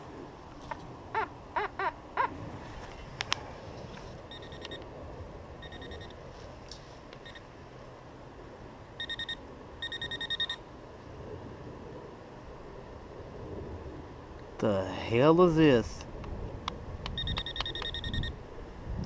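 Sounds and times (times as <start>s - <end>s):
metal detector probe beeping: 4.3s - 4.8s, 5.6s - 6.2s, 7.2s - 7.5s, 9.0s - 10.6s, 17.1s - 18.4s
sharp clicks: 16.2s - 18.0s.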